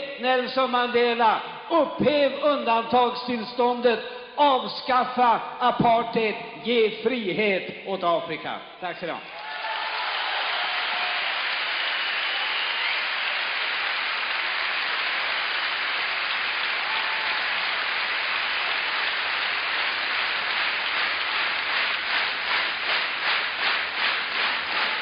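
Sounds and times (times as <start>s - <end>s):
audience applauding: 9.3s - 25.0s
rhythmic clapping in unison: 9.3s - 25.0s.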